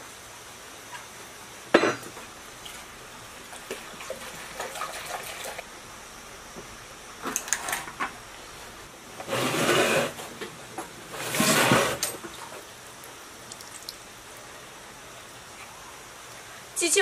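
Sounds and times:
fuel pouring through funnel: 0:11.1 - 0:14.6.

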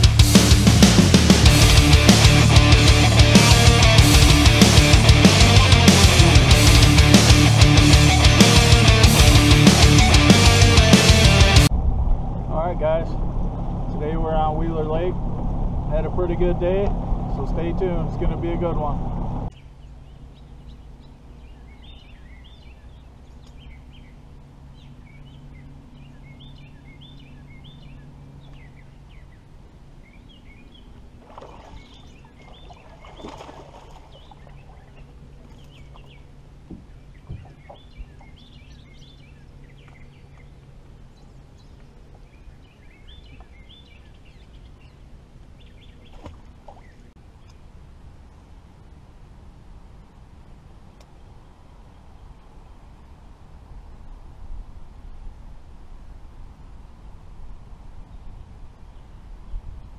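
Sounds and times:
birds chirping: 0:00.0 - 0:11.7, 0:15.8 - 0:48.8
water splashing: 0:31.0 - 0:38.4, 0:46.0 - 0:47.1.

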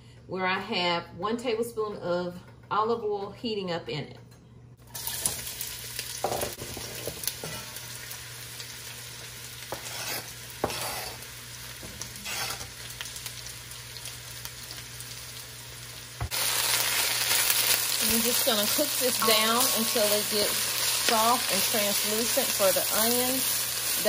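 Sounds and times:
vegetables sizzling in hot oil: 0:04.9 - 0:24.0
scrapes and knocks on cutting board: 0:09.7 - 0:11.2.

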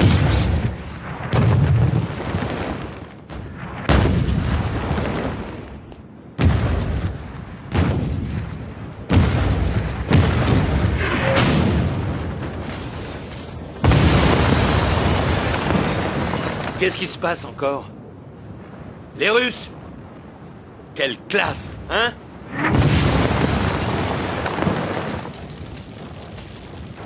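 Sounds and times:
shells exploding: 0:00.0 - 0:17.0, 0:22.5 - 0:27.0.

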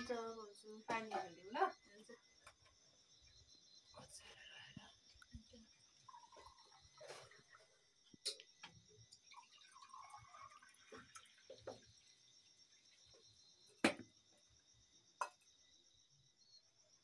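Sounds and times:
crickets chirping: 0:00.0 - 0:17.0
liquid pouring into mug: 0:05.3 - 0:12.5.

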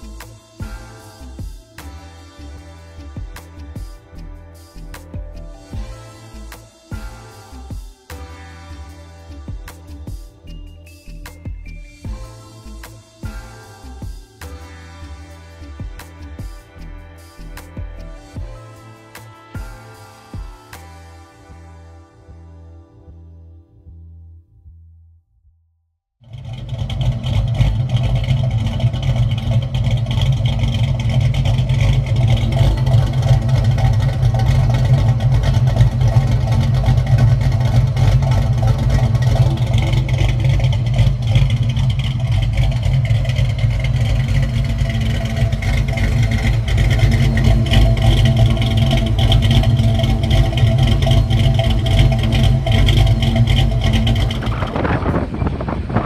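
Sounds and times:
car engine idling: 0:00.0 - 0:14.6, 0:26.2 - 0:56.0.

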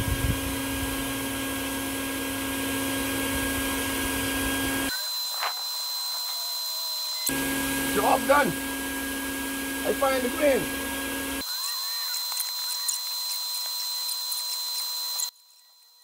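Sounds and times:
thin hiss with high tone: 0:11.4 - 0:16.0.

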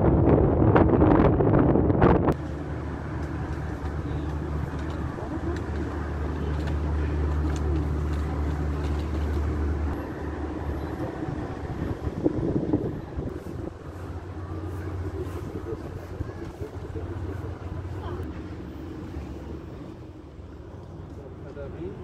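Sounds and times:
wind on microphone: 0:00.0 - 0:05.4, 0:10.8 - 0:18.3
distant city traffic: 0:00.0 - 0:22.0
low engine rumble: 0:00.0 - 0:22.0.

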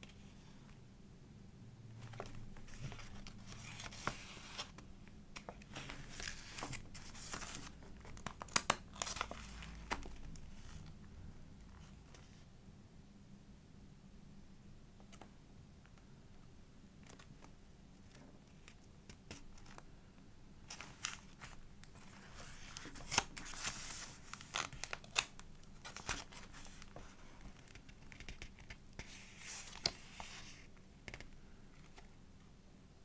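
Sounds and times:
paper pages rustling and crinkling: 0:02.0 - 0:11.0, 0:20.7 - 0:32.1.

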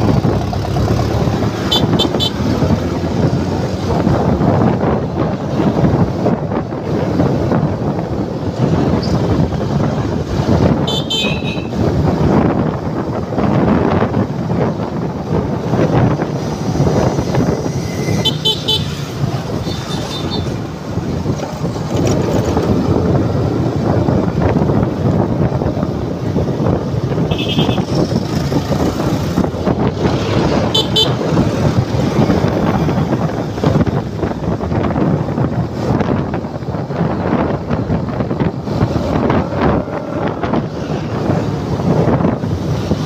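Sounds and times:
motorcycle engine: 0:00.0 - 0:13.2
passing traffic: 0:00.0 - 0:43.0
wind noise: 0:00.0 - 0:43.0.

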